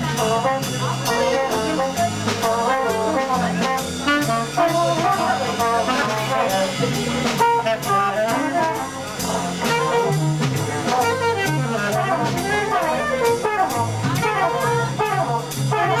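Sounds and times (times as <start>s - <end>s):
drums keeping a steady beat: 0.0s - 16.0s
saxophone: 0.0s - 16.0s
trumpet: 0.0s - 16.0s.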